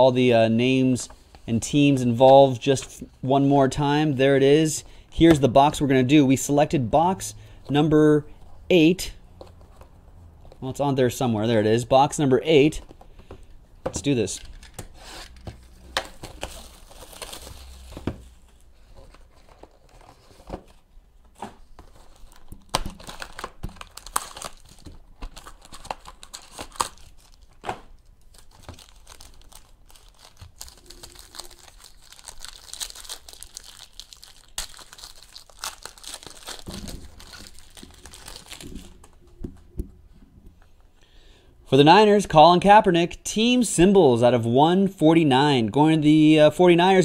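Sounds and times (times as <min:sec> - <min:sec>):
cellophane tearing and crinkling: 0:16.1 - 0:18.0, 0:21.8 - 0:39.2.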